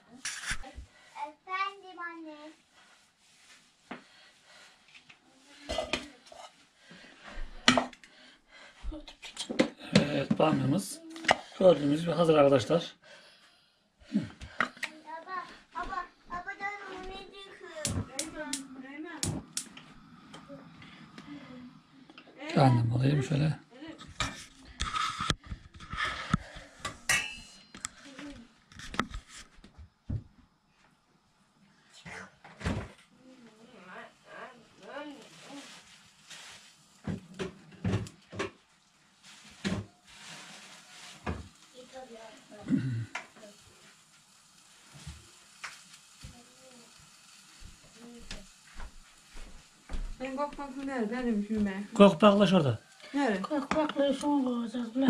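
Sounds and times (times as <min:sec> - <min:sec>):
kitchen utensils and pots clattering: 0:24.0 - 0:27.8
dishes and utensils clinking: 0:26.8 - 0:27.8.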